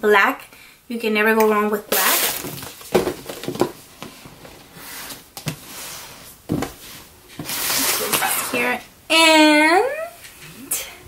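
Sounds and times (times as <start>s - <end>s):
packaging rustling: 1.9s - 5.6s.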